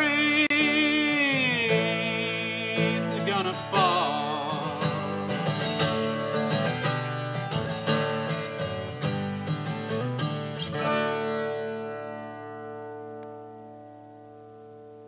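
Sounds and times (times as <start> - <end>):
man singing with vibrato: 0.0 - 6.2
strummed acoustic guitar: 0.0 - 15.0.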